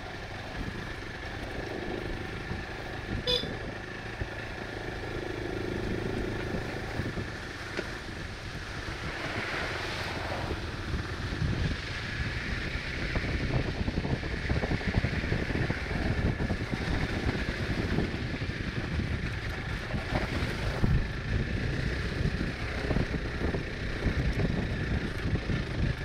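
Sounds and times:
motorcycle engine off-road: 0.0 - 26.0
wind buffeting microphone: 5.7 - 26.0.

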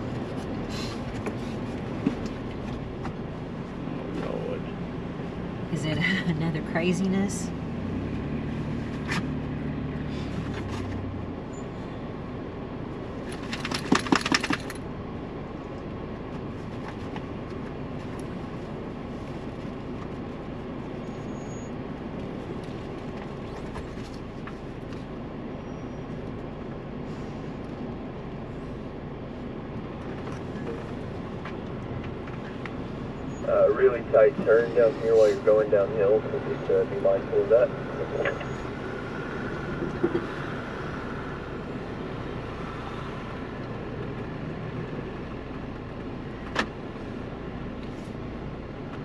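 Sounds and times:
engine and tyres rumbling: 0.0 - 49.0
rattling clatter: 13.2 - 14.8.

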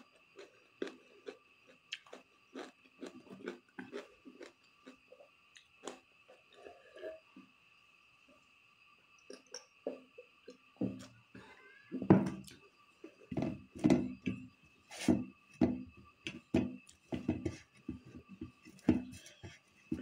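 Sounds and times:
chewing food: 0.0 - 7.3.

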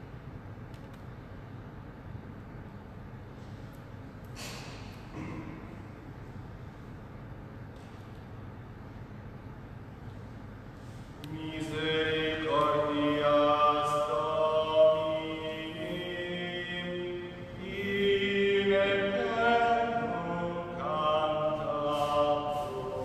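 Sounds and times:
person chanting long notes: 11.2 - 23.0.

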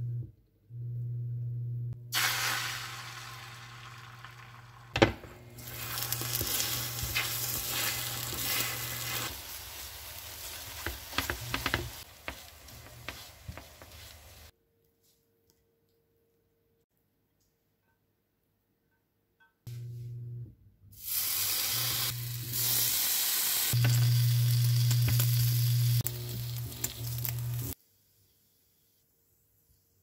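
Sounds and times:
eggs sizzling in pan: 2.1 - 14.5, 21.0 - 27.8
spatula scraping pan: 5.9 - 9.3.

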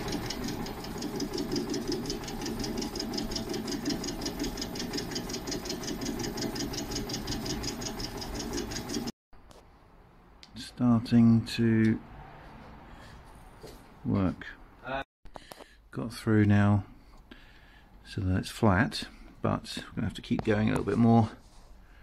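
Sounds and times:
metal lathe drone with fast ticking: 0.0 - 9.1.

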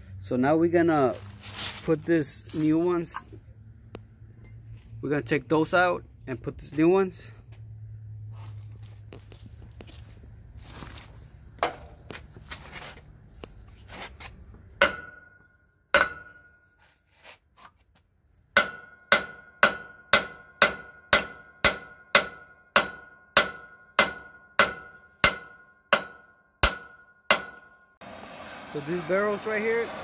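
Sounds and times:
hammer striking metal pin: 14.8 - 16.7, 18.6 - 27.9.

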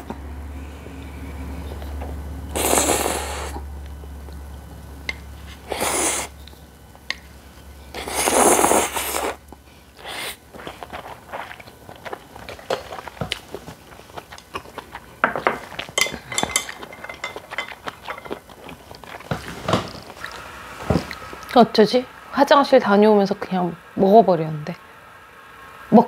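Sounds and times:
noodles slurped loudly: 7.9 - 9.4
wet chewing clicks: 9.0 - 20.4.

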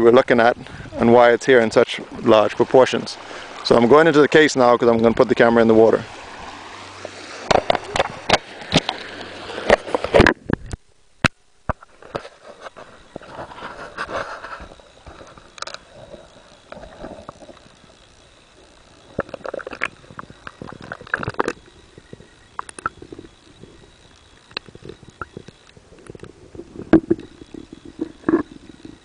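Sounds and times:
faint steady high tone: 0.0 - 6.0, 12.6 - 29.0
muffled underwater sloshing: 0.0 - 10.3, 11.9 - 29.0.

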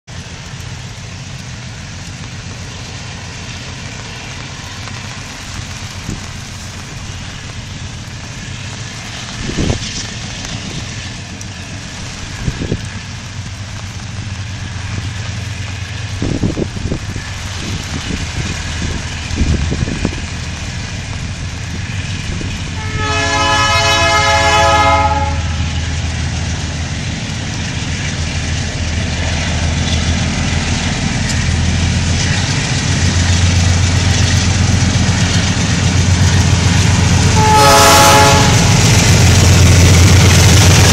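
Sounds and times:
locomotive engine rumble: 0.1 - 40.9
rain hissing: 0.1 - 40.9
train horn blast: 22.7 - 25.9, 37.2 - 39.3.

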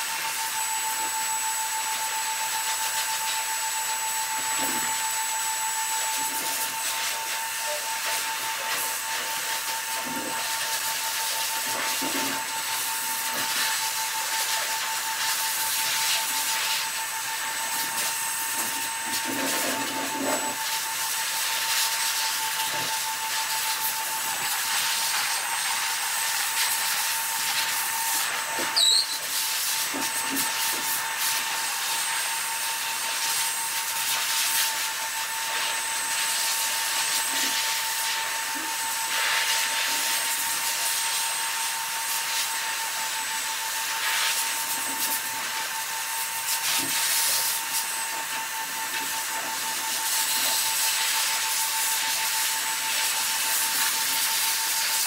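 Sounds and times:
motor running with whine: 0.0 - 55.0
comb rubbing dog coat: 6.0 - 41.4, 43.6 - 55.0
high squeak: 28.6 - 29.4.

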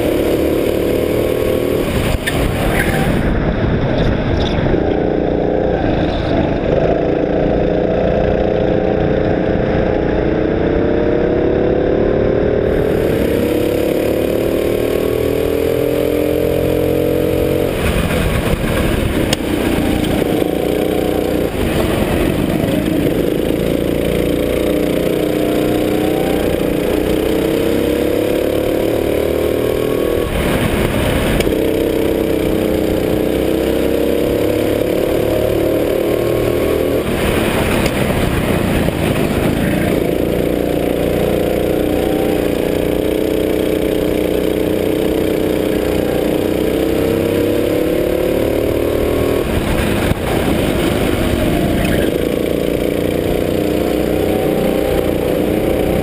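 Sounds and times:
go-kart engine: 0.0 - 56.0
rushing rattling noise: 16.8 - 25.4, 26.5 - 33.2, 34.8 - 41.8, 48.8 - 53.6.

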